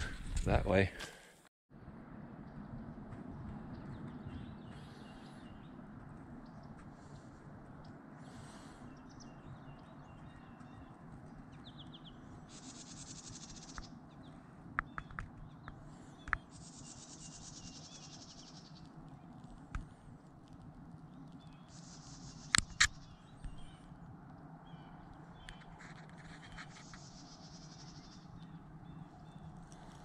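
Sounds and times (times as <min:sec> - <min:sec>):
low outdoor rumble: 0:01.8 - 0:30.0
sharp clicks and snaps: 0:22.4 - 0:23.6.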